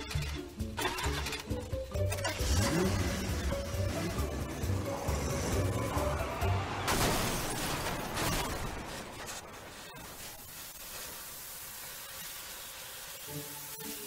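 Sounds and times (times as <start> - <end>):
metal crunching: 6.8 - 10.3
glass breaking: 6.9 - 9.3
steam hissing: 9.5 - 14.0.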